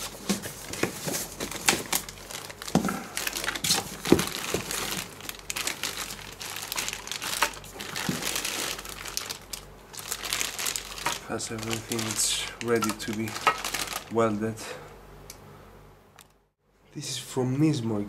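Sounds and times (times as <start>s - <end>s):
packing peanuts rustling: 0.0s - 14.3s
plastic bags crinkling: 0.0s - 14.3s.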